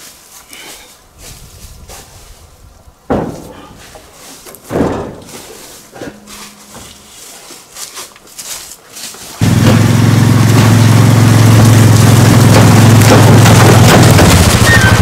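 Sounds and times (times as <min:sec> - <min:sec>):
engine running loudly: 0:09.4 - 0:15.0.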